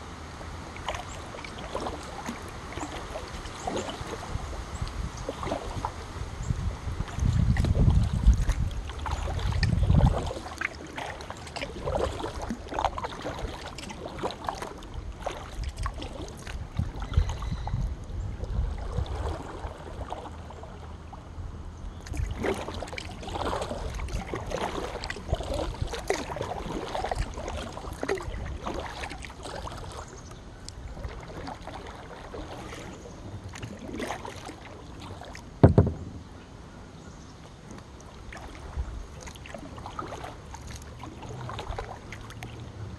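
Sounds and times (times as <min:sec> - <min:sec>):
paddle splashing water: 0:00.0 - 0:42.9
loud knock: 0:35.6 - 0:36.2
low rumble: 0:35.6 - 0:36.8.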